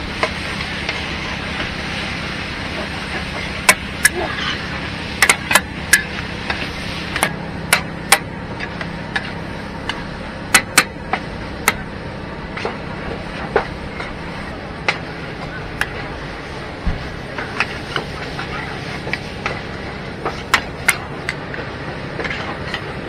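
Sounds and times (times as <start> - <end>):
frying hiss: 0.0 - 23.0.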